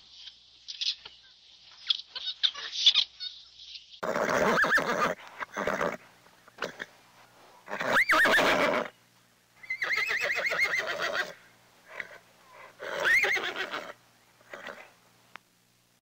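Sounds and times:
horse whinnying: 4.0s - 6.0s, 6.6s - 6.9s, 7.7s - 8.9s, 9.6s - 14.9s.

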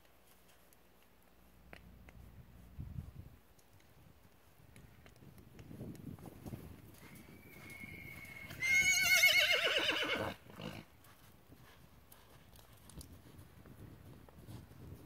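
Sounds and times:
horse whinnying: 7.4s - 10.9s.

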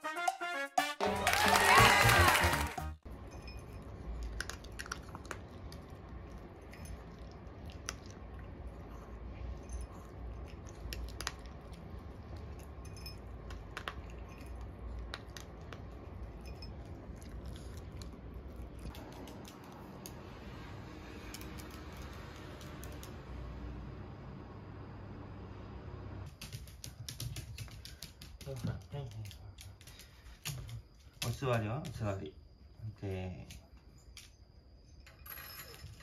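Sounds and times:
dog crunching dry kibble: 4.0s - 6.2s
food clicking in bowl: 4.2s - 5.9s.

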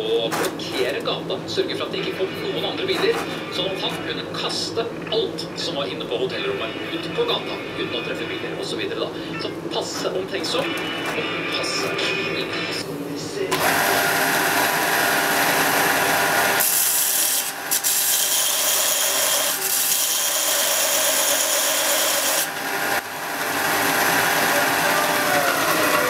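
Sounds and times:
metal grinding on belt sander: 13.6s - 26.0s
sander motor whine: 22.4s - 26.0s.

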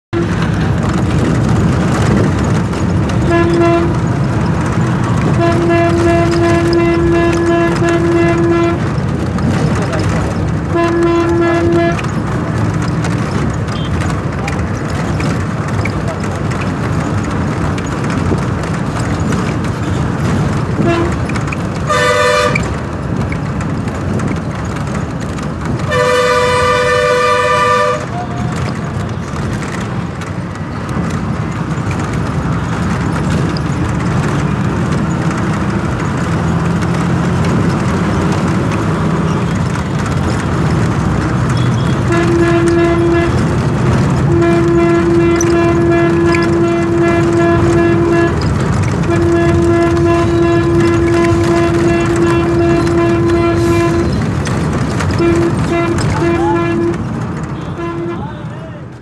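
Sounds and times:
rumble of moving vehicle: 0.1s - 59.0s
vehicle horn blasts: 3.2s - 4.2s, 5.2s - 8.9s, 10.7s - 12.1s, 20.8s - 21.2s, 21.9s - 22.7s, 25.9s - 28.3s, 41.5s - 43.5s, 44.2s - 54.2s, 55.1s - 57.0s, 57.6s - 58.5s.

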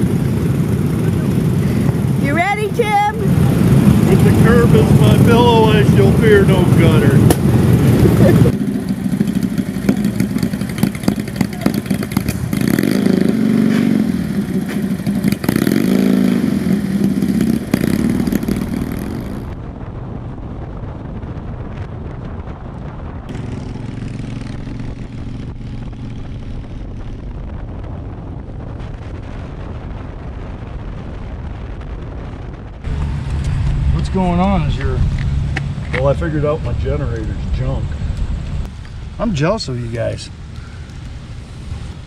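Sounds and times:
motorcycle engine revving: 0.0s - 19.6s, 23.2s - 30.7s, 32.8s - 42.0s.

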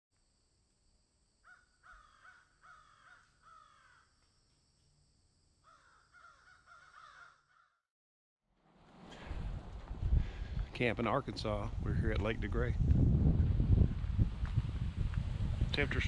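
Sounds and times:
bird calling faintly: 1.4s - 4.1s.

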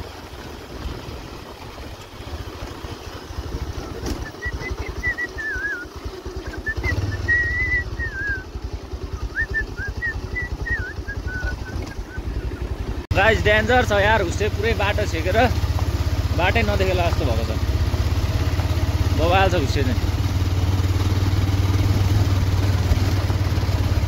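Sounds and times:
motorcycle engine running: 0.0s - 24.0s
wavering high whistle: 4.2s - 5.9s, 6.5s - 8.5s, 9.2s - 12.2s.

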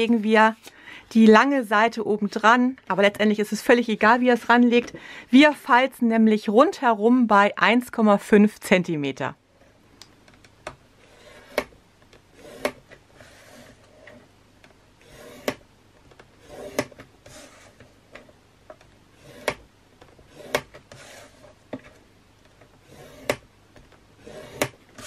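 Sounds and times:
stylus scraping plastic board: 11.0s - 14.3s, 15.0s - 15.6s, 16.2s - 23.5s, 24.2s - 25.0s.

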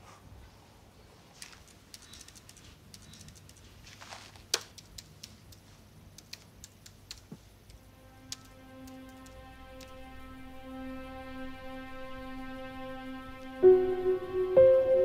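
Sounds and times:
laptop keyboard typing: 1.4s - 9.9s.

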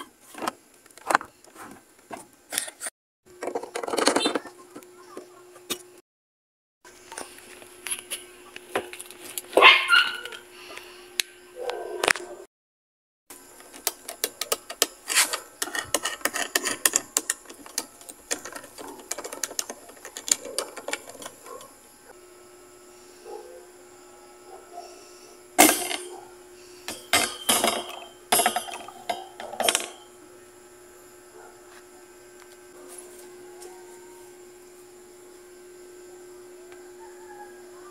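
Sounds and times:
clicks and knocks of fan parts: 13.6s - 21.7s, 25.6s - 26.1s, 26.9s - 30.0s.

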